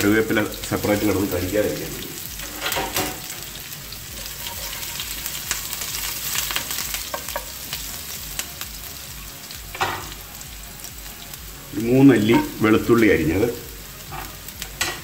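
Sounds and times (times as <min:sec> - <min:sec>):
food sizzling in hot oil: 0:00.0 - 0:15.0
spatula scraping a pan: 0:04.1 - 0:05.6.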